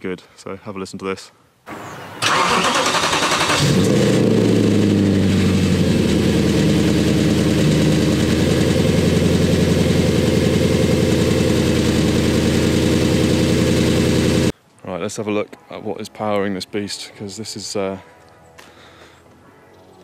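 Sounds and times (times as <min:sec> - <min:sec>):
car engine starting and idling: 0:01.7 - 0:14.5.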